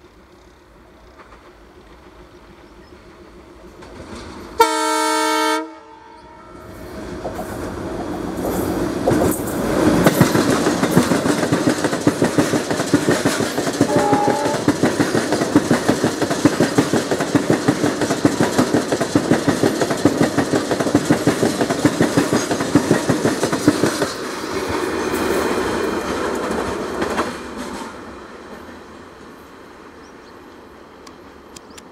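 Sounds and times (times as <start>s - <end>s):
train wheels clickety-clack: 0.2s - 5.0s, 6.8s - 28.7s
locomotive horn: 4.6s - 6.7s, 13.8s - 14.7s
locomotive engine rumbling: 6.0s - 24.4s.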